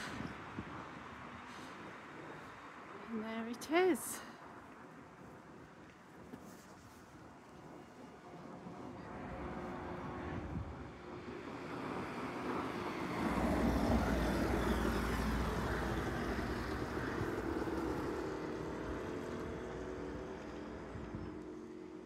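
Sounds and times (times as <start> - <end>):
vehicle passing with deep rumble: 9.1 - 21.9.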